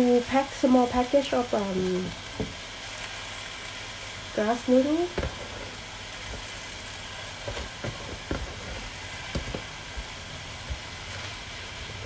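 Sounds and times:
food sizzling in a hot pan: 0.0s - 12.0s
vegetables dropping into pan: 5.1s - 5.6s, 7.4s - 11.3s.

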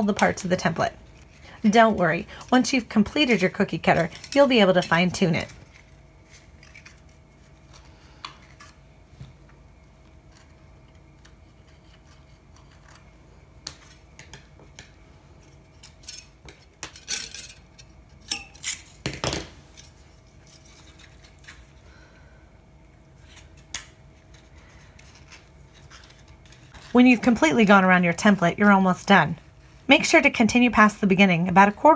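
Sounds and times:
aluminum strip crinkling: 0.0s - 8.8s, 19.7s - 21.8s, 23.1s - 27.8s.

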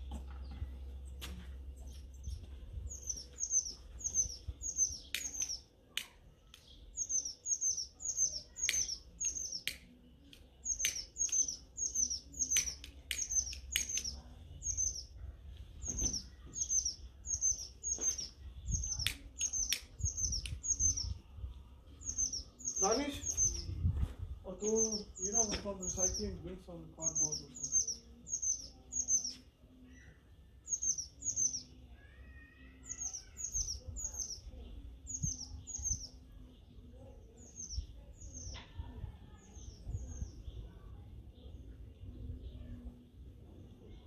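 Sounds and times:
songbird chirping: 0.0s - 44.0s
sharp clicks: 8.6s - 11.6s, 12.4s - 14.2s.

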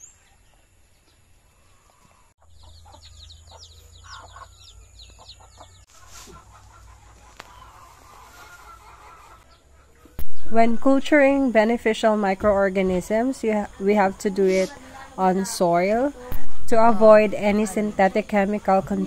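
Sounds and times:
chicks peeping: 0.0s - 10.6s
chickens clucking: 0.0s - 19.0s.

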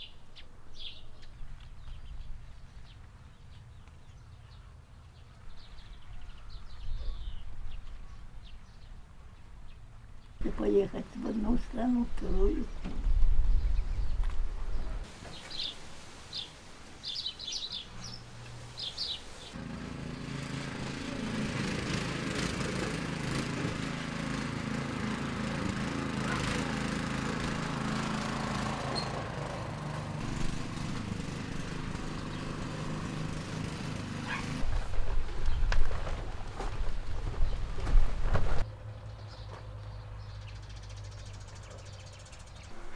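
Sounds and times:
birds chirping: 0.0s - 34.6s, 38.9s - 42.9s
walking tractor engine running: 19.6s - 38.6s.

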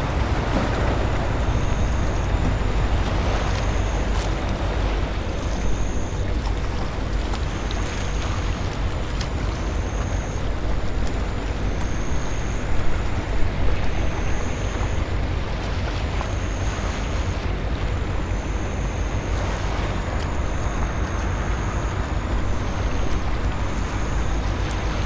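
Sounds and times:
faint high-pitched tone: 1.4s - 4.2s, 9.2s - 10.6s, 11.7s - 12.9s, 13.8s - 15.2s, 16.1s - 25.0s.

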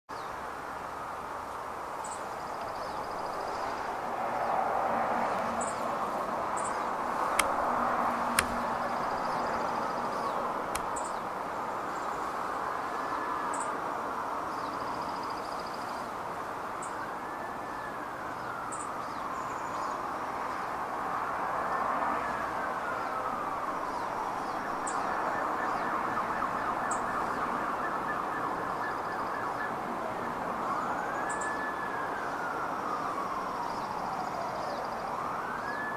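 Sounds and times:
traffic hum: 0.1s - 35.9s
distant sirens wailing: 0.3s - 35.9s
birds chirping: 2.0s - 4.6s, 5.2s - 13.8s
sharp clicks: 7.3s - 8.7s, 10.7s - 11.2s.

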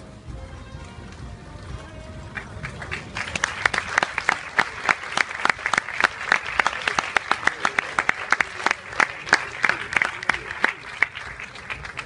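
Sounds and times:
horses galloping on sand: 0.0s - 4.7s
spectators applauding: 2.3s - 12.0s.

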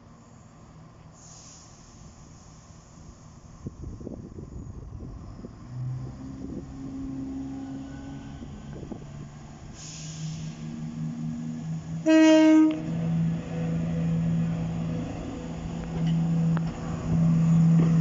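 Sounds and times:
diesel train engines running: 0.0s - 18.0s
train horn blast: 10.5s - 14.4s.

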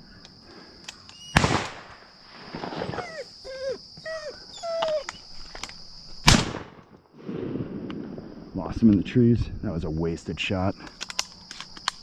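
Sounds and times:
shotgun blasts: 1.3s - 2.0s, 6.2s - 7.6s
dog whining: 2.9s - 5.3s.

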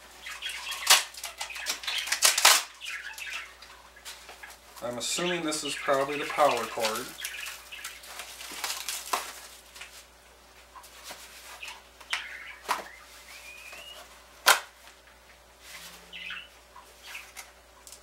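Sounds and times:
sharp cardboard snap: 14.4s - 14.7s.

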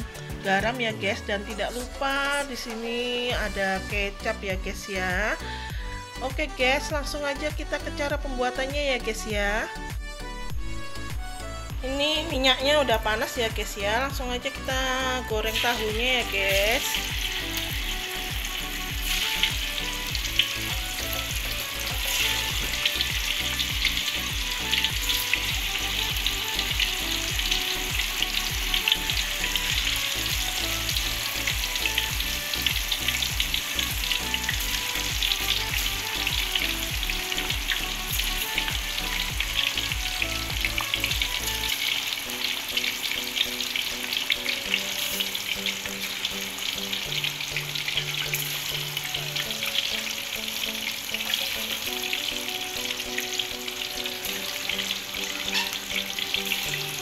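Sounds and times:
tofu frying in hot oil: 12.9s - 57.0s.

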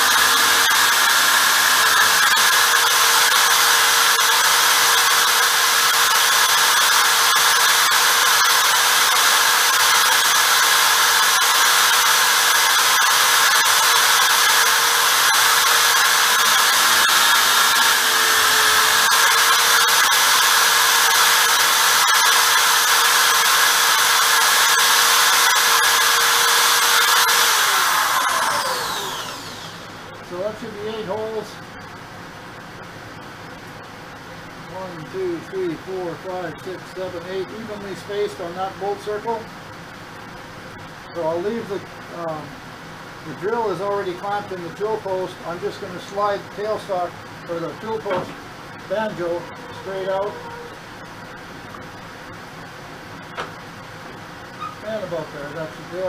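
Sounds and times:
electric drill running: 0.0s - 30.1s.

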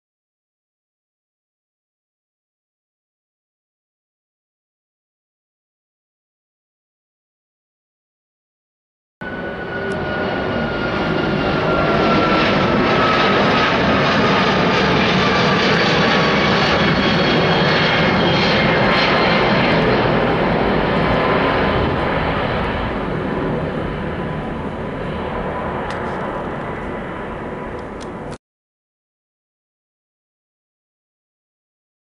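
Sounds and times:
jet engines roaring overhead: 9.2s - 28.4s.

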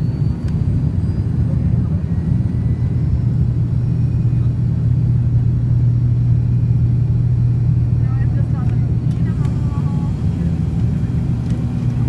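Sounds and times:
propeller plane engine drone: 0.0s - 12.0s.

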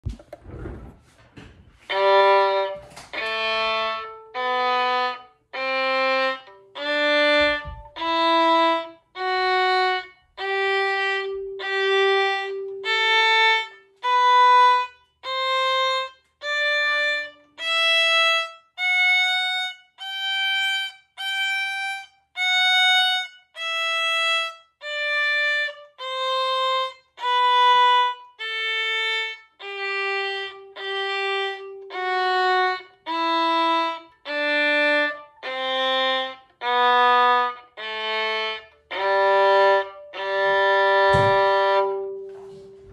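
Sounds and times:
violin playing a scale: 1.8s - 42.9s.

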